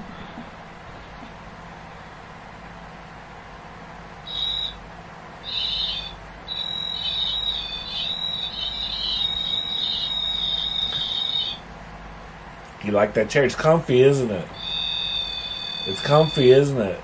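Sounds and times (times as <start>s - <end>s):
steady low hum: 0.0s - 17.0s
high-pitched whistling tone: 4.3s - 4.8s, 5.4s - 11.6s, 14.6s - 16.6s.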